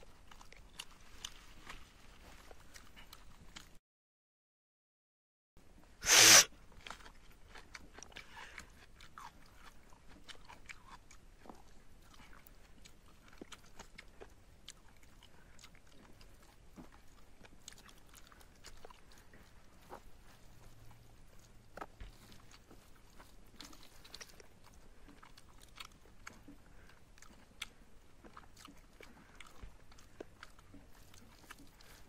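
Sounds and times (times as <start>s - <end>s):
chewing: 0.0s - 3.8s, 5.8s - 32.0s.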